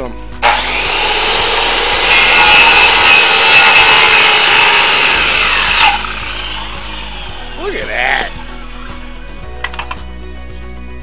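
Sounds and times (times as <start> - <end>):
power saw cutting wood: 0.4 - 9.2.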